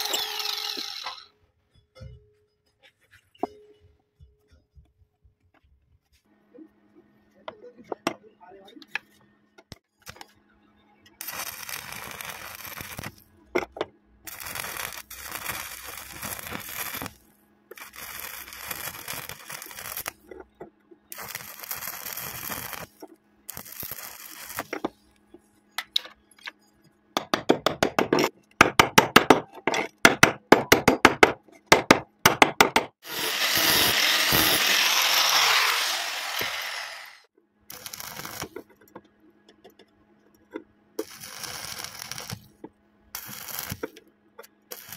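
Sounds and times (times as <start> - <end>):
welding arc crackling and hissing: 11.2 - 13.3, 14.3 - 20.3, 21.1 - 24.8, 33.0 - 38.6, 41.0 - 42.5, 43.2 - 44.0.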